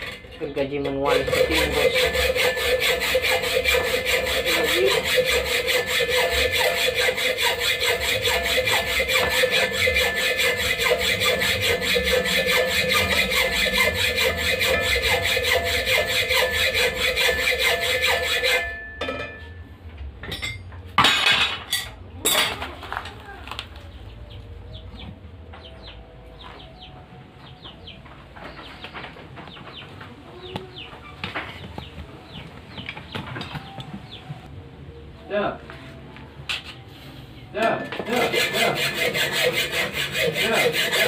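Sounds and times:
hacksaw cutting steel: 0:00.0 - 0:19.5, 0:37.7 - 0:41.0
metal knocks and clanks: 0:08.0 - 0:19.6, 0:20.2 - 0:22.7.

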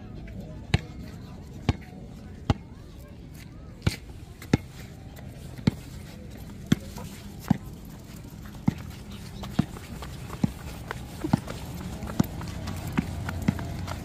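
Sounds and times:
footsteps on concrete: 0:03.3 - 0:14.0.

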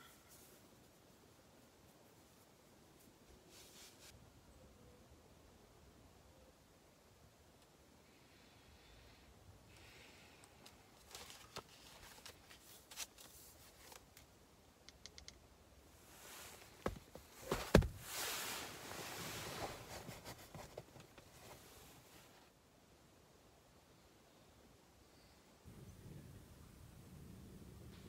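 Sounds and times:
small clicks and taps: 0:13.9 - 0:15.4
bedding rustling: 0:16.0 - 0:22.5.

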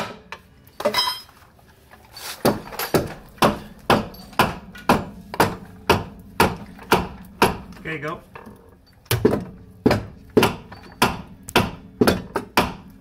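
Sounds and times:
ringing metal clink: 0:00.9 - 0:01.3, 0:10.7 - 0:11.0.

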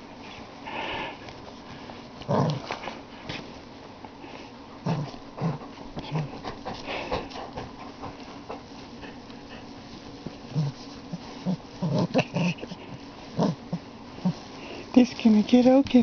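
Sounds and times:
rustling of bedding: 0:00.0 - 0:16.0
puppy low vocal sounds: 0:02.2 - 0:03.0, 0:04.8 - 0:14.9.

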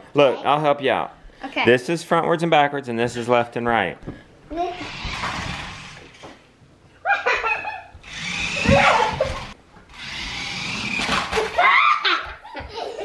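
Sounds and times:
children's voices: 0:04.5 - 0:05.0
toy truck electric motor whirring: 0:04.7 - 0:06.2, 0:08.0 - 0:11.6
children laughing: 0:07.0 - 0:09.6, 0:11.0 - 0:13.0.

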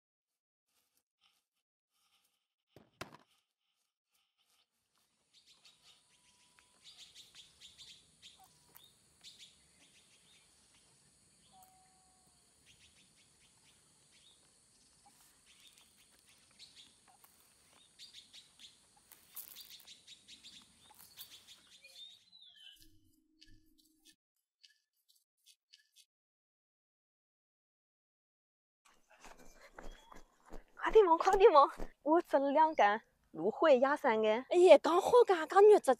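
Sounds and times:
birds chirping: 0:05.0 - 0:24.1.

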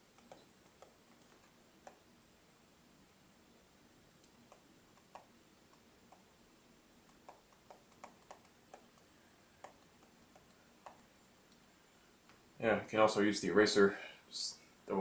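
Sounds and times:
faint room hiss: 0:00.0 - 0:15.0
stylus tapping on glass screen: 0:07.1 - 0:11.1.

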